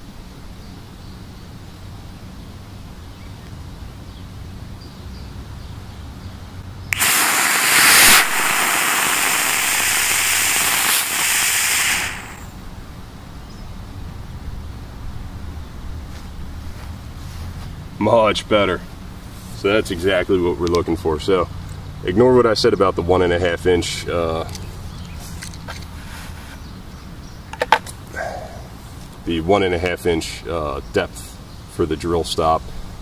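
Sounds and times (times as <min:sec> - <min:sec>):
rocket motor rushing hiss: 0:06.9 - 0:12.6.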